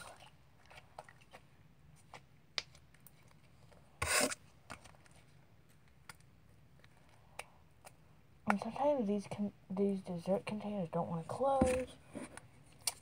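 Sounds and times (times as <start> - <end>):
loud rasping plastic scrape: 4.0 - 4.4.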